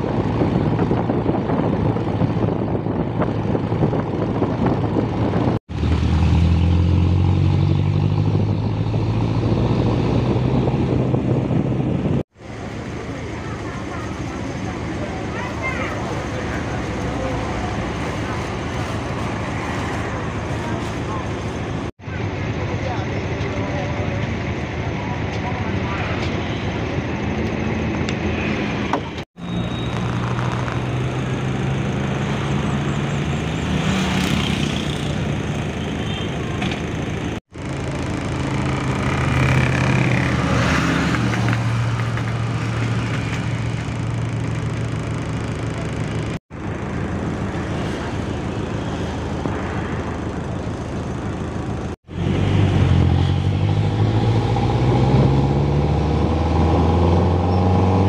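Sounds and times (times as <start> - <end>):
minibus engine driving: 0.0 - 58.0
outdoor background noise: 0.0 - 58.0
vehicle engines running: 0.0 - 58.0.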